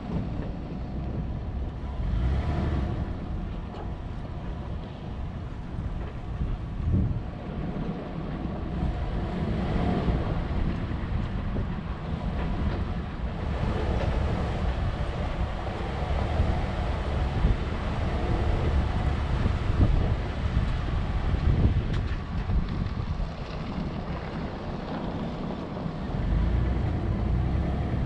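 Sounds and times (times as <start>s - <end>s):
vehicle engine and road rumble: 0.0s - 28.0s
wind buffeting microphone: 0.0s - 28.0s.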